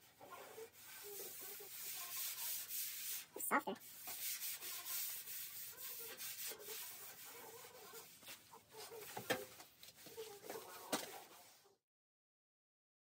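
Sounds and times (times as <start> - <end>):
sanding metal by hand: 0.1 - 8.4.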